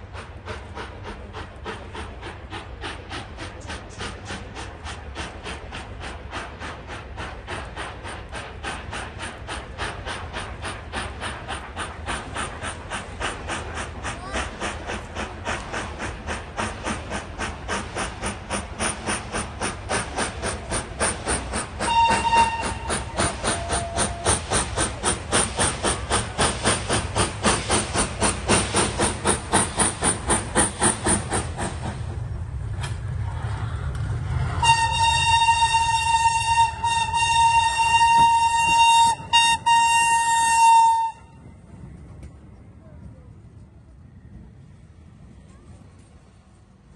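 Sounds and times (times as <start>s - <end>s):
locomotive rolling rumble: 0.0s - 46.9s
steam locomotive chuffing: 0.0s - 46.9s
steam whistle blast: 21.8s - 24.4s, 34.6s - 41.3s.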